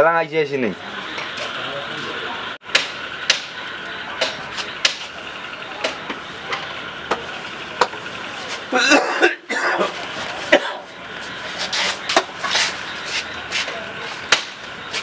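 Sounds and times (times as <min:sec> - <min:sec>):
person coughing: 0:08.7 - 0:10.9.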